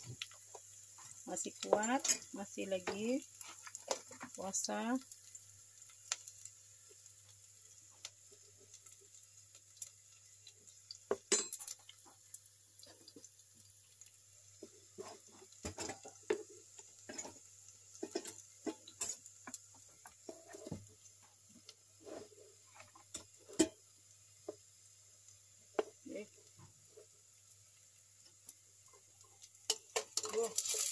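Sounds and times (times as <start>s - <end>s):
cookware clinking and clanking: 1.6s - 3.0s, 11.1s - 11.8s, 15.6s - 16.4s, 18.0s - 19.2s, 23.1s - 23.8s, 29.7s - 30.9s.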